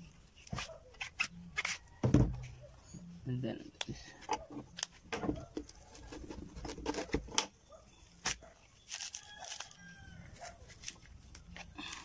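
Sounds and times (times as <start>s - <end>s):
stalk pieces handled: 8.1s - 12.0s.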